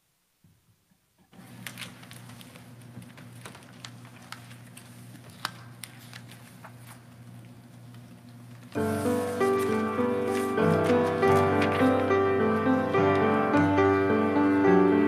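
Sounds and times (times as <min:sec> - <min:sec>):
paper rustling: 0:01.4 - 0:12.7.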